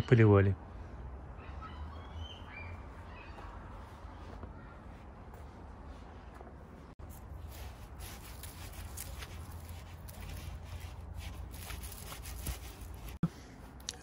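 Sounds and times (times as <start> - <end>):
garden tool scraping dry soil: 7.0 - 13.2.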